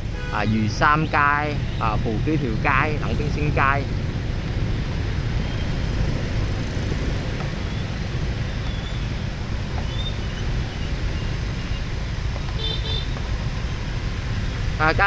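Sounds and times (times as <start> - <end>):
high horn toot: 0.0 - 0.5, 12.6 - 13.2
street traffic rumble: 0.0 - 15.0.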